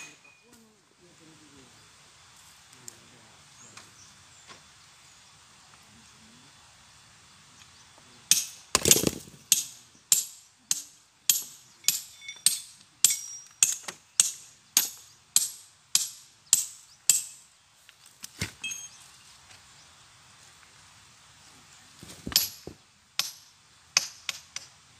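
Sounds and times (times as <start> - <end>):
light metal clinks: 9.0 - 15.0, 18.6 - 19.0
hammer striking steel chisel: 9.5 - 17.4.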